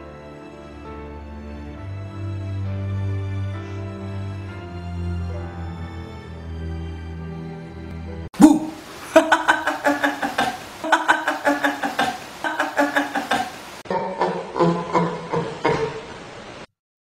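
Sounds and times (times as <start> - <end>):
soft film score music: 0.0 - 8.3.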